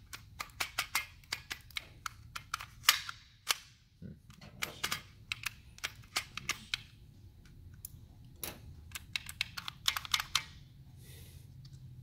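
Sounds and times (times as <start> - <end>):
plastic clicks and clatter: 7.8 - 10.6.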